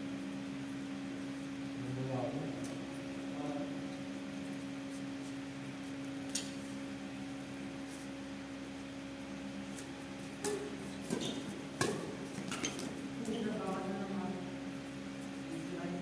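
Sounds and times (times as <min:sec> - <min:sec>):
steady low hum: 0:00.0 - 0:16.0
badminton racket hitting shuttlecock: 0:10.4 - 0:12.9.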